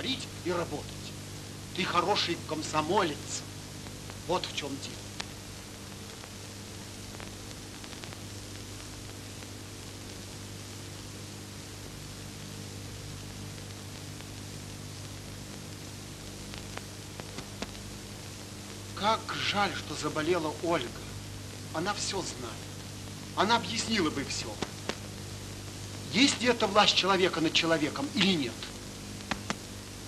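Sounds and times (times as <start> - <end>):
film soundtrack hiss and hum: 0.0 - 30.0
faint clicks: 5.2 - 5.4, 7.1 - 9.2, 16.5 - 17.9, 24.6 - 26.0, 28.2 - 29.8.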